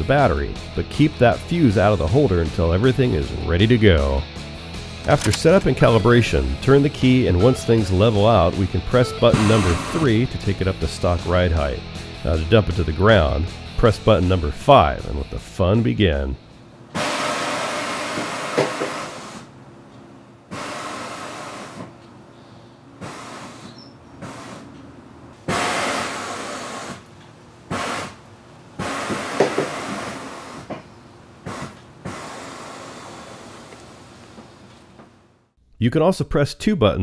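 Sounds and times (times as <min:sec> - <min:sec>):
sharp clicks: 0:05.0 - 0:05.7
air hissing out: 0:09.3 - 0:10.2, 0:17.0 - 0:19.5, 0:20.5 - 0:21.9, 0:23.0 - 0:24.7, 0:25.5 - 0:27.0, 0:27.7 - 0:28.2, 0:28.8 - 0:30.7, 0:31.4 - 0:33.7.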